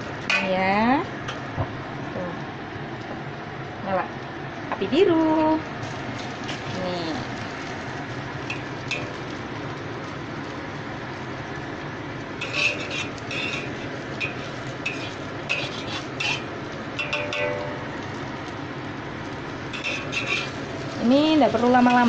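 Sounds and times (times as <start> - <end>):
noodles sizzling in oil: 0.0 - 22.0
spatula scraping and tapping wok: 8.4 - 9.4, 12.4 - 18.3, 19.6 - 22.0.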